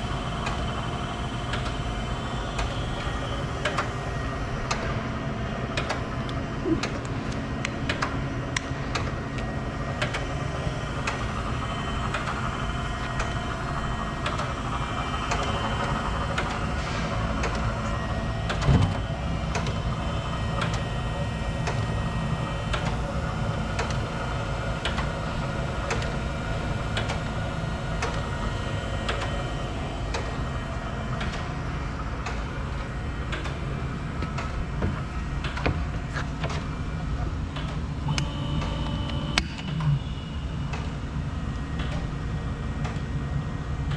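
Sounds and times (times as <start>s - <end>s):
surface grinder machine hum: 10.3s - 24.4s.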